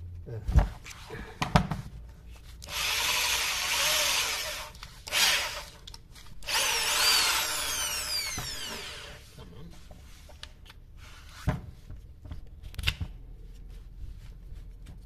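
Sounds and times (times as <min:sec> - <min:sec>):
electric drill motor whine: 0:02.7 - 0:05.8, 0:06.4 - 0:09.2.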